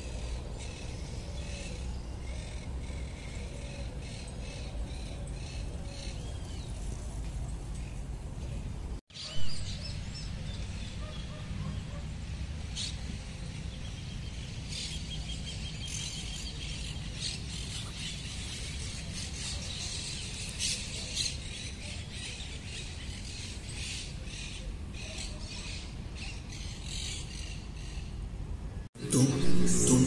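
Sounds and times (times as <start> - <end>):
birds chirping: 0.0 - 28.2
steady low rumble: 29.0 - 30.0.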